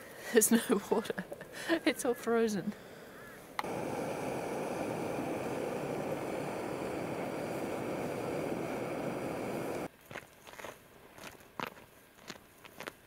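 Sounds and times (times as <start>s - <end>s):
gas stove roaring: 3.6s - 9.9s
footsteps on dirt trail: 9.9s - 13.0s.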